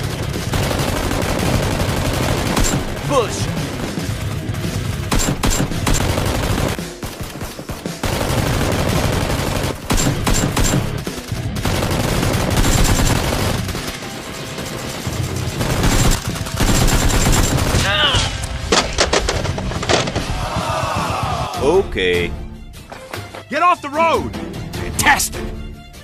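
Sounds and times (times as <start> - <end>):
automatic gunfire sound effects: 0.0 - 18.1.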